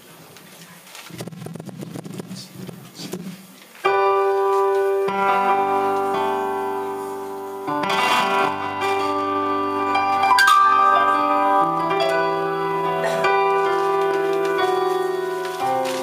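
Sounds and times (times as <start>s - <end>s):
keyboard playing sustained chords: 3.9s - 16.0s.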